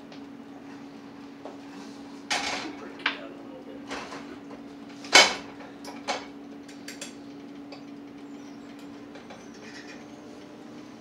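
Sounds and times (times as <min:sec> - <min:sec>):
steady low hum: 0:00.0 - 0:11.0
pots and pans clanking: 0:02.3 - 0:03.0, 0:03.8 - 0:10.2.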